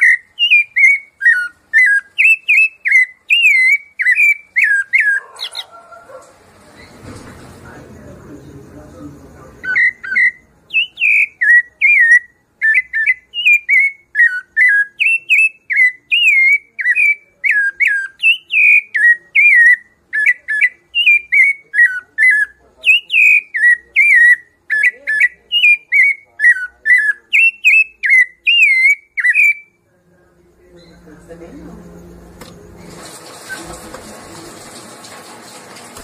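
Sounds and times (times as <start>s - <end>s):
thrush singing whistled notes: 0.0s - 5.7s, 9.3s - 29.9s.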